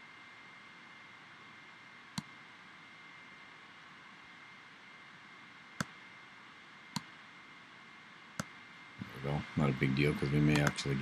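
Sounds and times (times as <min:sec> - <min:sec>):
faint high whine: 0:00.0 - 0:11.0
steady hiss: 0:00.0 - 0:11.0
computer mouse clicks: 0:02.1 - 0:02.4, 0:05.8 - 0:06.0, 0:06.9 - 0:07.1, 0:10.5 - 0:10.8.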